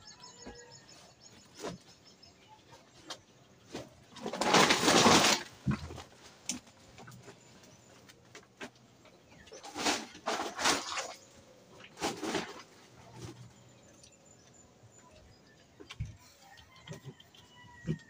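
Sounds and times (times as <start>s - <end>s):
rustling and handling noises: 3.0s - 14.6s.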